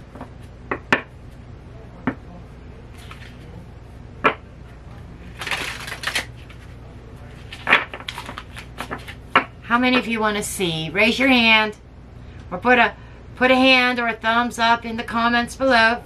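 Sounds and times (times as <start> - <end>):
cards rustling: 3.0 - 3.6, 5.2 - 9.3
cards clicking and tapping: 7.5 - 9.5.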